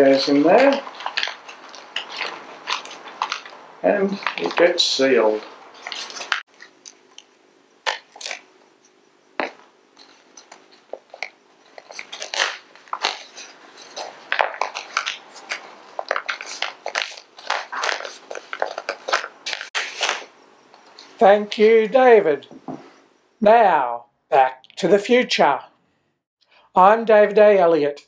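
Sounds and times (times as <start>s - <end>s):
paper envelope rustling: 0.0s - 7.2s, 9.4s - 20.3s.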